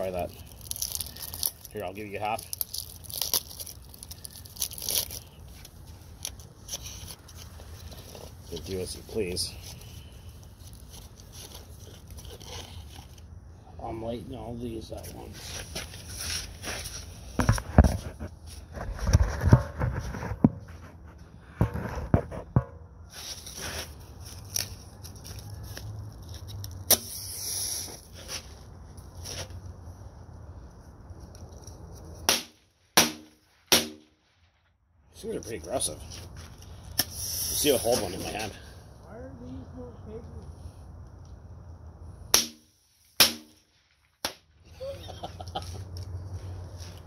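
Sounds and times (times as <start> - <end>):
firecracker sharp crack: 26.9 - 27.9, 32.3 - 34.2, 42.3 - 44.5
firecrackers exploding: 26.9 - 27.9
firecrackers hissing: 26.9 - 28.2, 36.9 - 38.2.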